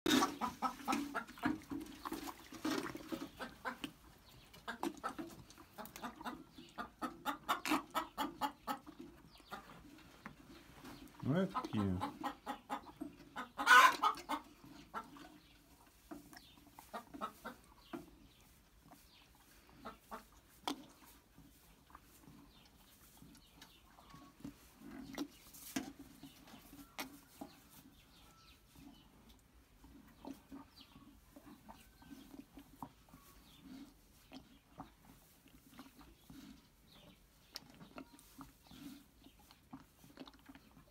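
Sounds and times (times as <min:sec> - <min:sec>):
calf sucking and slurping milk: 0:00.1 - 0:40.9.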